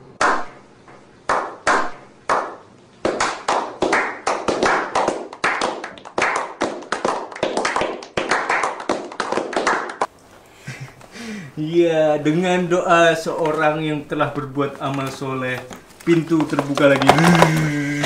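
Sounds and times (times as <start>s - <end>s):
people slow-clapping: 1.3s - 10.1s, 17.0s - 18.0s.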